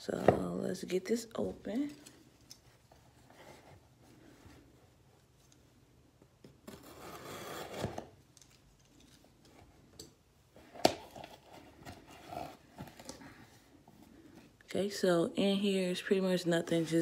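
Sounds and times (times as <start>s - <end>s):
cardboard tearing: 6.6s - 8.2s.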